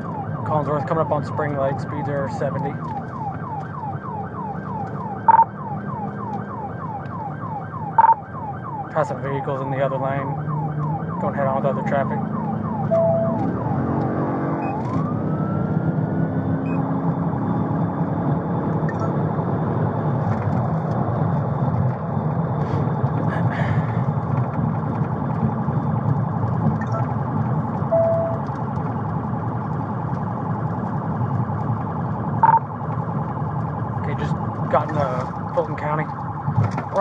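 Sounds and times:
engine and road noise: 0.0 - 37.0
police siren wailing: 0.0 - 37.0
short beep: 5.3 - 5.5, 27.9 - 28.4, 32.4 - 32.6.

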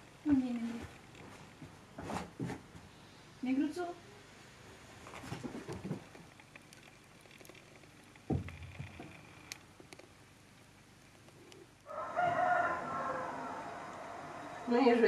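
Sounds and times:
wood fire crackling: 4.9 - 15.0.

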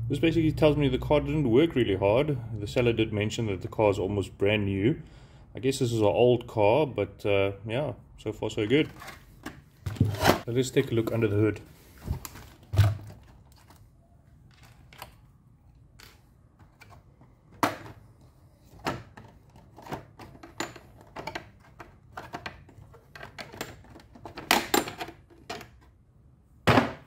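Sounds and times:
plastic body shell handled: 8.7 - 24.7.

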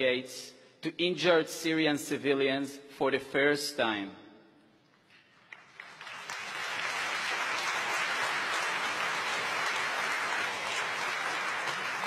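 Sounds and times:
audience applause: 5.5 - 12.0.

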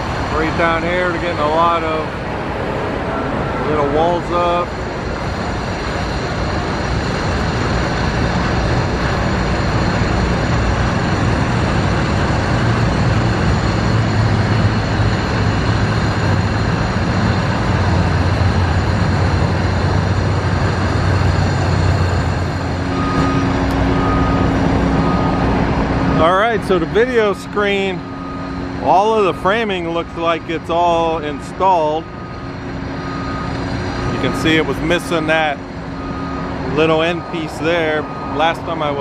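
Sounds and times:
construction site noise: 0.0 - 39.0
diesel construction vehicle running: 0.0 - 39.0
short beeps: 22.9 - 25.5, 31.3 - 39.0.

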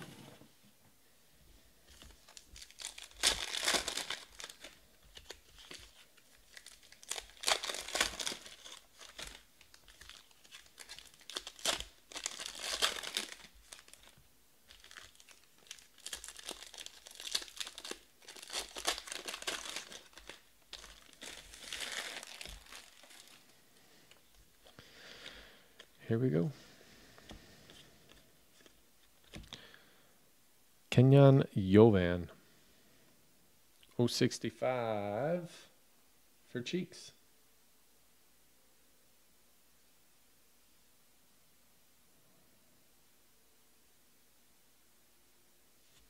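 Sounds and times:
foil wrappers tearing and crinkling: 1.9 - 23.5.

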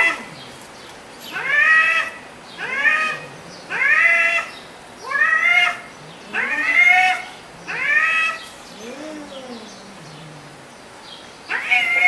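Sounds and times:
cat meowing: 11.5 - 12.0.

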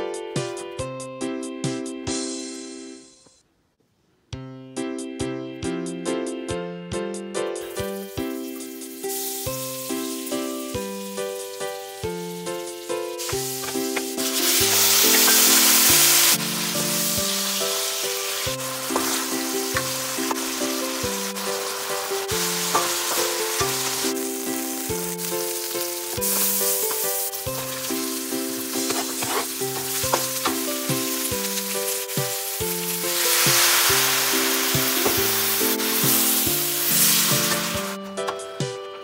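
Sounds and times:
background music with plucked melody: 0.0 - 3.3, 4.3 - 39.0
food sizzling in a wok: 7.6 - 38.0.

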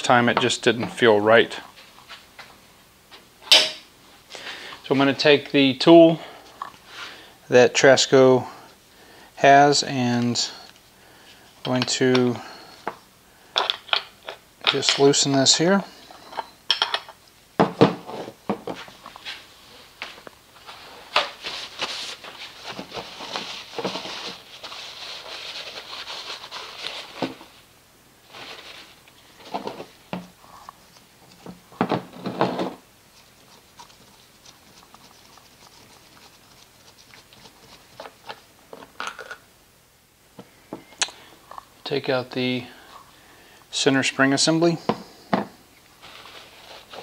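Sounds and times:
rustling: 18.0 - 39.4, 45.8 - 47.0.

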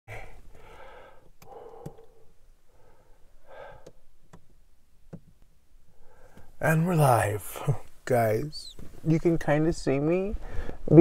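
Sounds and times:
faint breathing and sighing: 0.1 - 4.0, 10.4 - 10.9.

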